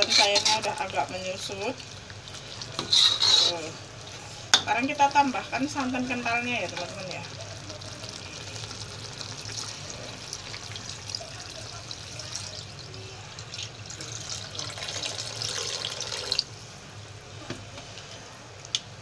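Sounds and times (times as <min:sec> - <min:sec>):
liquid pouring into a wok: 0:06.7 - 0:16.6.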